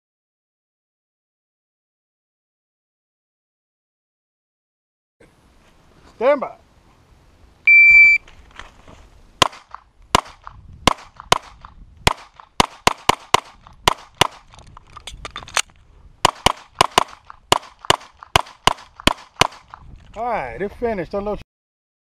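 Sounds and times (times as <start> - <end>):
shot timer beep: 7.7 - 8.2
pistol shots: 9.4 - 14.5, 16.2 - 19.8.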